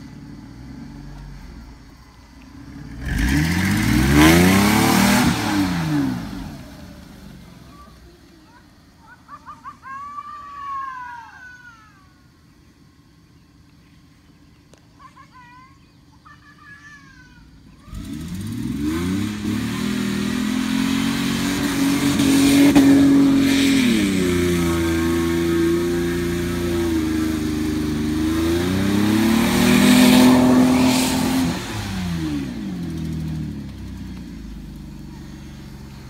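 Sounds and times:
car engine revving: 0.0 - 8.1, 17.6 - 36.0.

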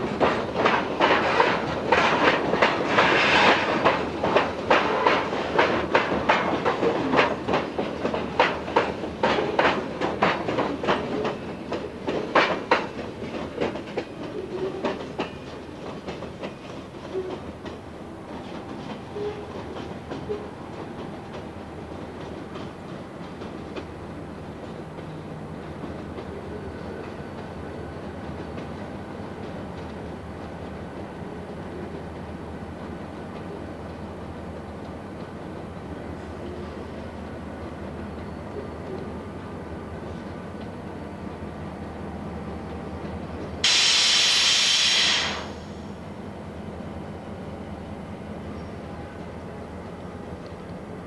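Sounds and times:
diesel locomotive engines rumbling: 0.0 - 51.0
wheels clicking over rail joints: 0.1 - 24.0
air venting hiss: 43.6 - 45.8.

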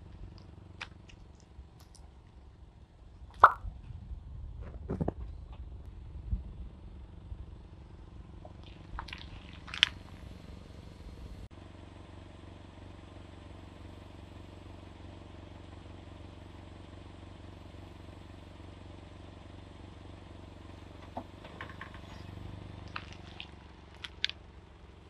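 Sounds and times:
car engine idling: 0.0 - 4.6, 5.3 - 25.0
sharp cracks: 3.3 - 3.6, 22.8 - 24.4.

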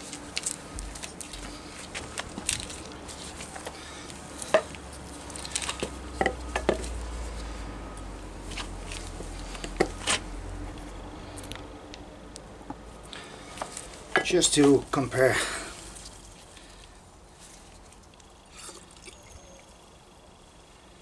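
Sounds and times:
shock absorbers clicking and knocking: 0.1 - 7.0, 8.5 - 11.6.

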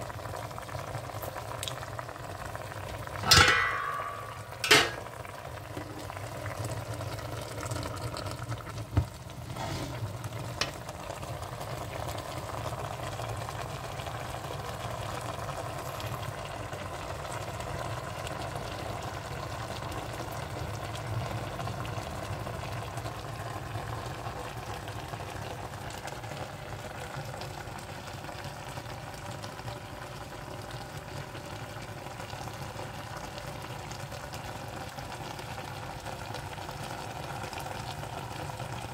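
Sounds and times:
food sizzling in a pot: 0.0 - 38.9
sharp knocks on pot: 3.2 - 5.1.

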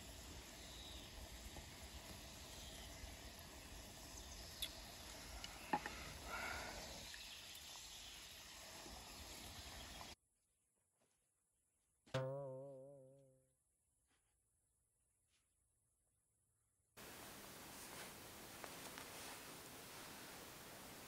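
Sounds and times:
oil sizzling in frying pan: 0.0 - 10.2.

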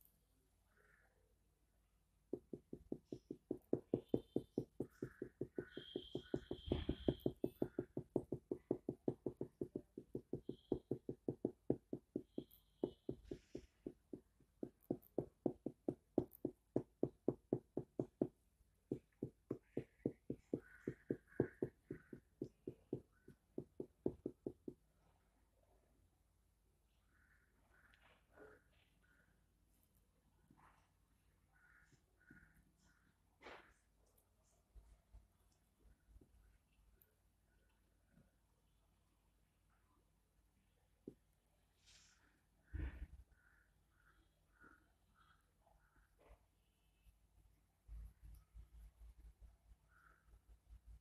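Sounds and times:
marker tapping on whiteboard: 2.3 - 24.8.

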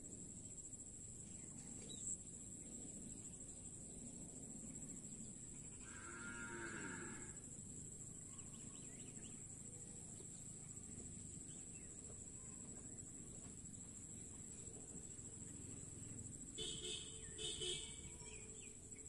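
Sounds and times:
continuous high whine: 0.0 - 19.0
cow mooing faintly: 5.8 - 7.4.

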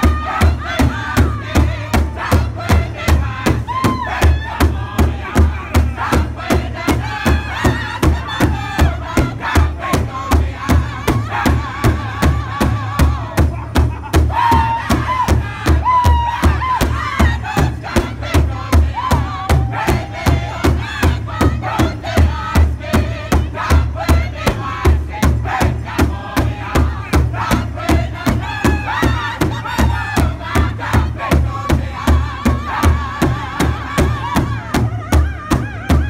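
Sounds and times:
group singing in high voices: 0.0 - 36.0
large drum steady beat: 0.0 - 36.0.

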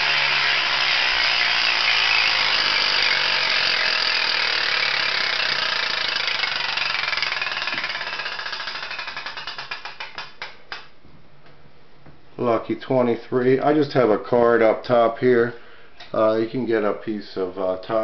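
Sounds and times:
spinning wheel clicker rattling: 0.0 - 10.4.

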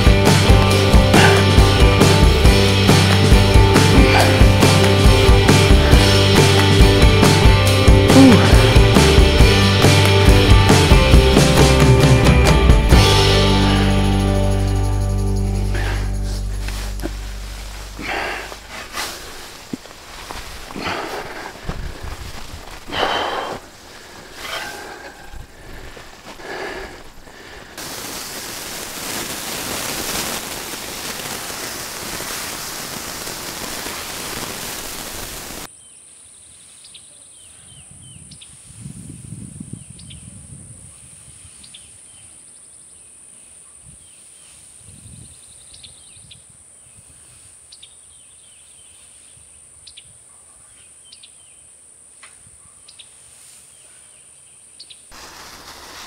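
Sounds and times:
hay rustling: 16.2 - 26.4, 55.1 - 56.0
loud steady hiss: 25.5 - 35.7, 55.0 - 56.0.

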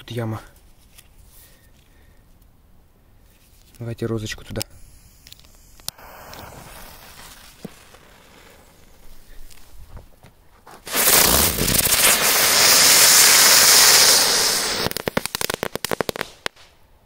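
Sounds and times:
firework crackling pops: 3.7 - 9.8, 10.8 - 16.8
firework hissing: 4.6 - 9.7, 10.8 - 16.5.

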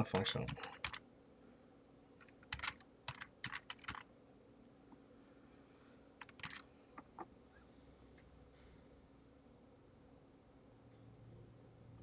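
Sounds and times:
typing on computer keyboard: 0.4 - 1.0, 2.2 - 4.1, 6.2 - 6.6.

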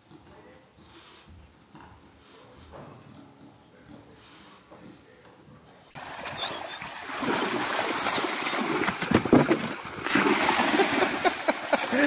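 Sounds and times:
creek water splashing: 6.0 - 12.0.

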